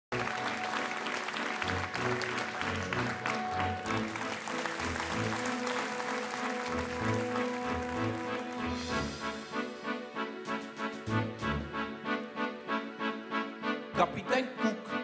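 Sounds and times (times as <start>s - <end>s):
audience applauding: 0.0s - 9.2s
live band playing: 0.1s - 12.8s.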